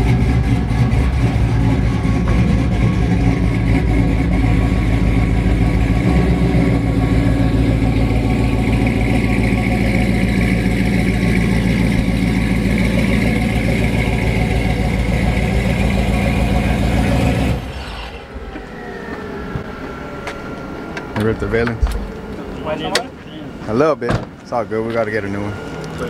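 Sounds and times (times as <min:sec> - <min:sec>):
truck engine idling: 0:00.0 - 0:26.0
faint falling whine: 0:05.2 - 0:26.0.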